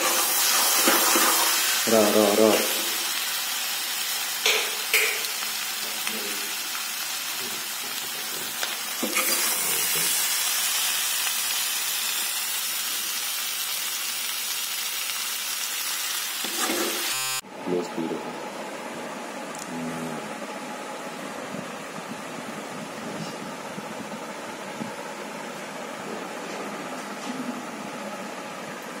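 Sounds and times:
food sizzling in a wok: 0:00.0 - 0:17.4
metal spatula scraping: 0:16.4 - 0:17.1.

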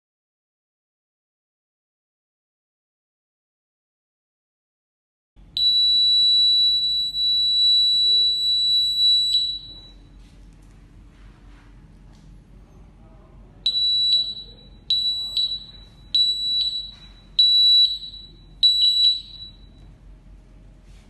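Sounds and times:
high-pitched electronic buzzer beeps: 0:05.6 - 0:10.0, 0:13.7 - 0:19.8.

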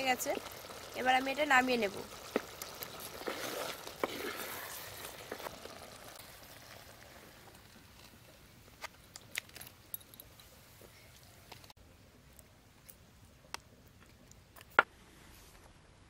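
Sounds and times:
curry bubbling and sizzling: 0:00.0 - 0:09.6
wooden spatula scraping pot: 0:02.2 - 0:06.0.

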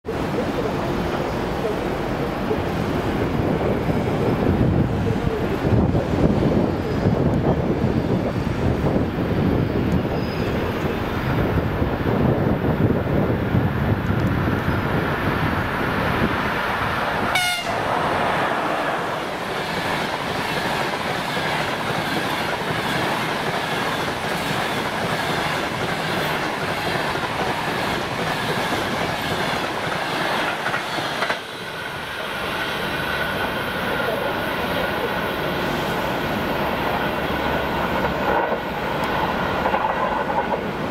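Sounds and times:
train passing at speed: 0:00.0 - 0:40.9
train horn toot: 0:17.3 - 0:17.9.

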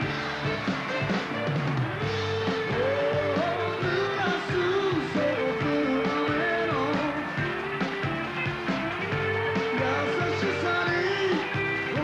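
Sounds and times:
rock band playing: 0:00.0 - 0:12.0
man singing into microphone: 0:02.7 - 0:07.3, 0:09.7 - 0:12.0.

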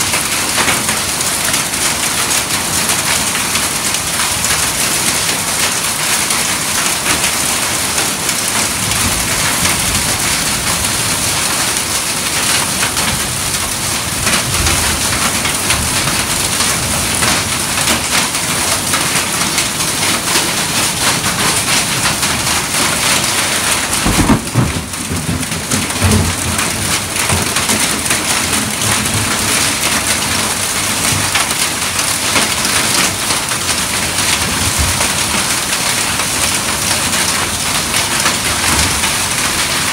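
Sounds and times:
heavy rain pouring: 0:00.0 - 0:39.9
low rumble of thunder: 0:23.6 - 0:30.0.

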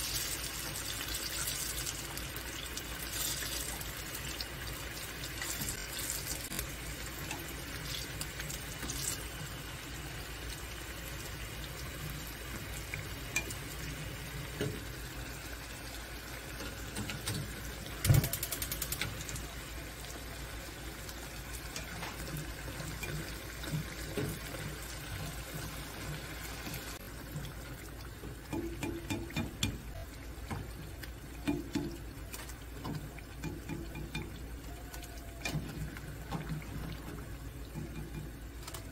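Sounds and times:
food deep-frying in hot oil: 0:00.0 - 0:38.9
rattle of sharp clicks: 0:17.0 - 0:19.2.

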